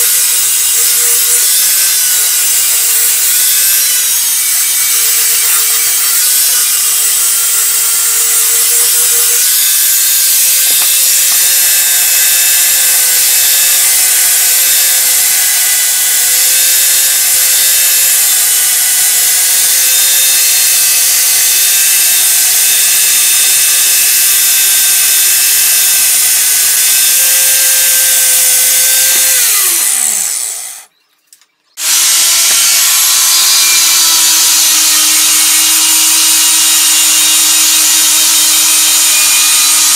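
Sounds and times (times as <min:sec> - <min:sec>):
angle grinder grinding metal: 0:00.0 - 0:30.9, 0:31.8 - 0:39.9.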